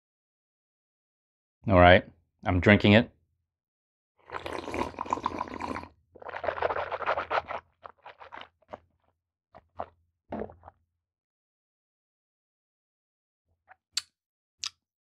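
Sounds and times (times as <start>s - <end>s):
person slurping and swishing water: 4.2s - 8.8s, 9.6s - 10.7s.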